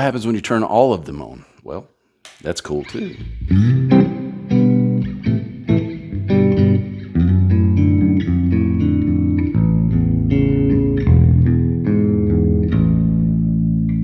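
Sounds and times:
electric bass notes and chords: 3.1 - 14.0.

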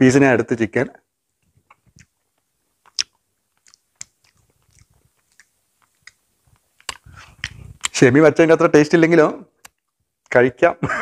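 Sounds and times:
man chewing food: 1.4 - 8.0.

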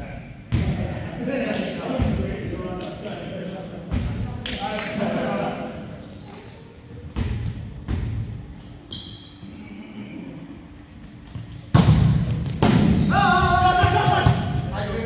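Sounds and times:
sharp volleyball hits: 0.4 - 0.9, 7.2 - 8.3, 11.7 - 14.6
sneaker squeaks: 6.0 - 10.4, 11.1 - 15.0.

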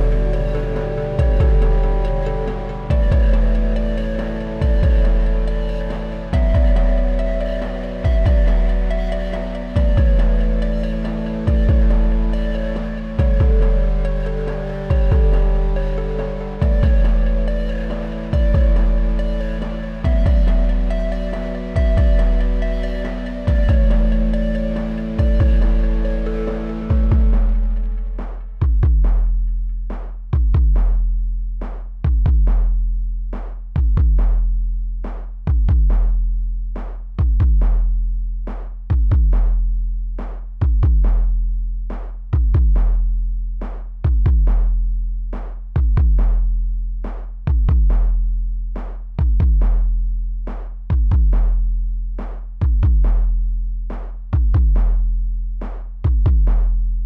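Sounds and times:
low bass tone: 0.0 - 33.2
deep kick drum: 0.0 - 57.0.

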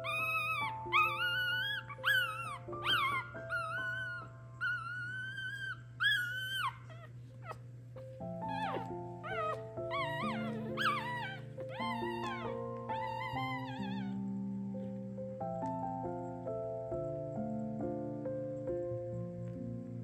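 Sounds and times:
puppies squeaking and whining: 0.0 - 14.3
soft background music: 0.0 - 20.0.

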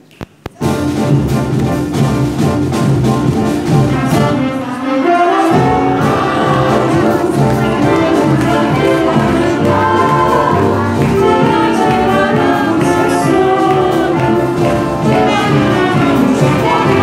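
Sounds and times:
live band playing: 0.5 - 17.0
trumpet: 0.6 - 17.0
women singing together: 4.0 - 17.0.

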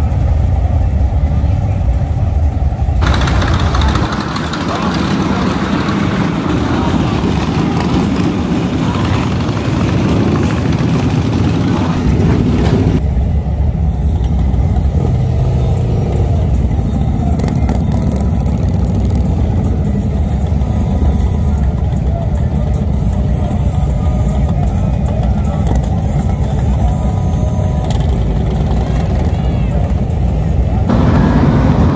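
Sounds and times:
motorcycle engines idling: 0.0 - 31.9
motorcycles rumbling past: 3.0 - 13.0, 30.8 - 31.9.

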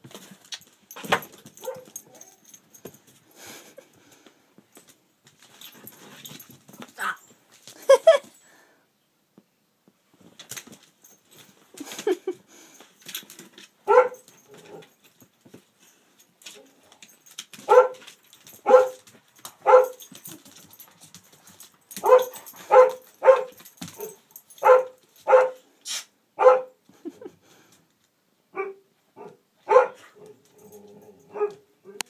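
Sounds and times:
dog barking: 1.6 - 2.4, 13.9 - 14.8, 17.6 - 18.0, 18.6 - 19.0, 19.6 - 20.0, 22.0 - 25.6, 26.4 - 26.8, 28.6 - 30.4, 31.3 - 32.0.

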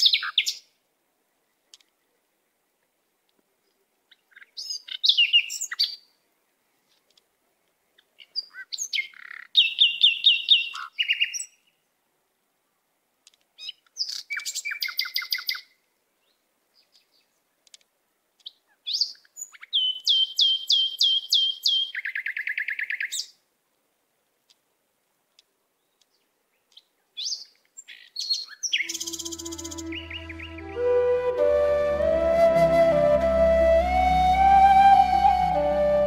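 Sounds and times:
songbird whistling: 18.9 - 23.3, 28.2 - 36.0.

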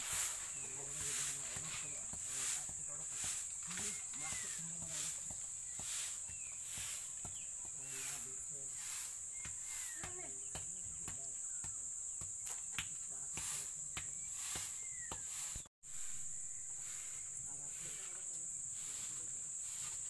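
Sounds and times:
short insect chirps: 0.0 - 10.5, 11.3 - 20.0
insects droning: 0.0 - 20.0.

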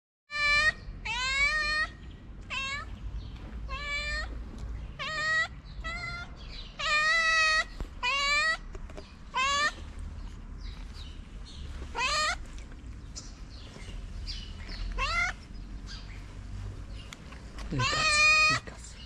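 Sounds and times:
cat meowing: 0.3 - 2.9, 3.6 - 4.4, 5.0 - 8.7, 9.3 - 9.8, 11.9 - 12.4, 14.9 - 15.4, 17.8 - 18.7.

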